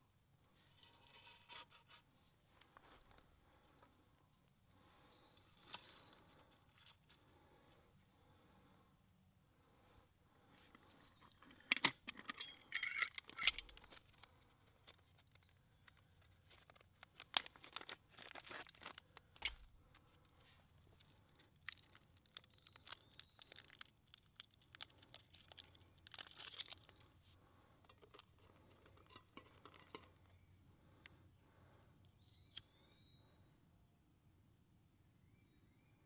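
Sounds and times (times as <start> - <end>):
metal pot clinking: 12.2 - 13.6
plastic bag crinkling: 14.8 - 19.6, 21.0 - 27.1.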